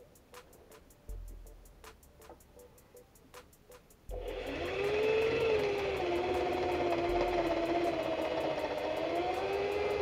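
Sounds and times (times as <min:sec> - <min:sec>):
electric drill boring into wood: 0:04.2 - 0:10.0.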